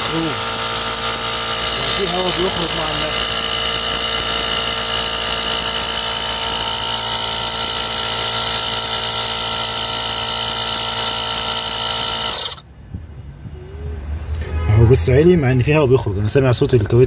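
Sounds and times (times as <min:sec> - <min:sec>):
tyre inflator pumping: 0:00.0 - 0:12.6.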